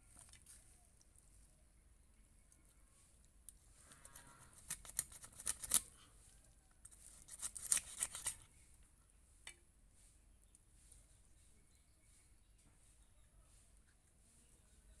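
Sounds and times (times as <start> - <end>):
crunching scraping cuts on blade: 3.8 - 6.2, 6.8 - 8.6.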